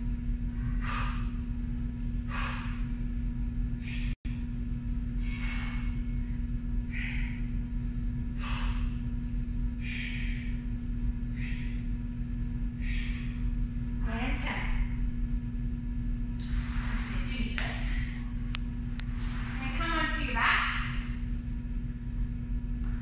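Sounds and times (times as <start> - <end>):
steady electrical hum: 0.0 - 23.0
woman breathing hard: 0.5 - 1.5, 2.2 - 3.1, 5.1 - 13.6.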